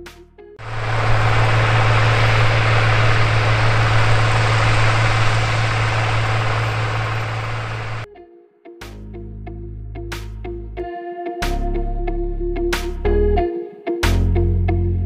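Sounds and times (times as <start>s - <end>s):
tractor engine drone: 0.6s - 8.1s.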